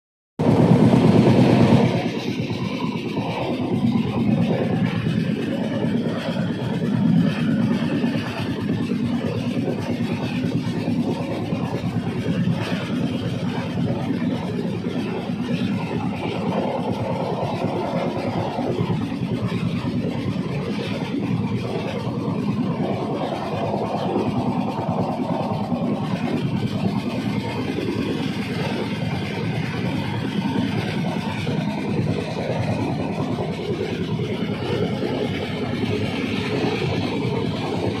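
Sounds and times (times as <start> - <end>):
train wheels running on rails: 0.4 - 38.0.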